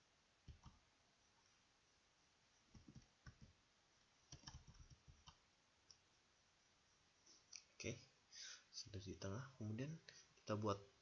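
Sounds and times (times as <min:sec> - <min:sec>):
computer mouse clicking: 0:00.5 - 0:00.8, 0:02.7 - 0:03.6, 0:04.3 - 0:06.0.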